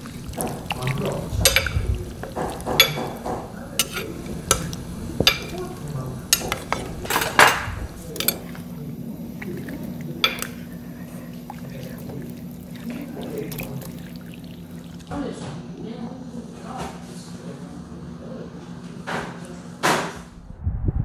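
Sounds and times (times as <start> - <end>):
wet sloshing of meat and liquid: 0.0 - 6.0, 7.9 - 15.1
metal tongs clicking on a pot: 1.4 - 3.2, 3.8 - 5.7, 6.3 - 7.5, 8.1 - 8.7, 10.2 - 10.6.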